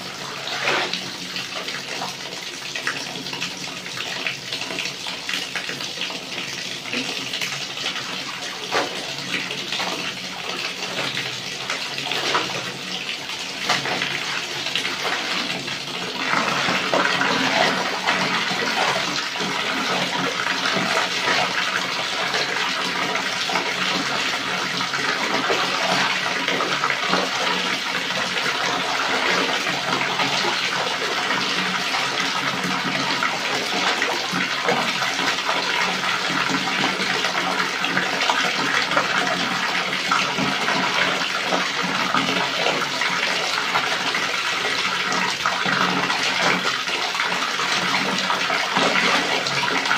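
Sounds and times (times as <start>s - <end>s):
tap water pouring into basin: 0.0s - 49.9s.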